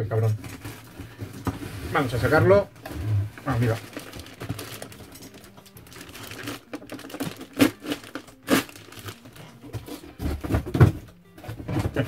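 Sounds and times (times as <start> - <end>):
plastic bag crinkling: 3.4 - 9.7.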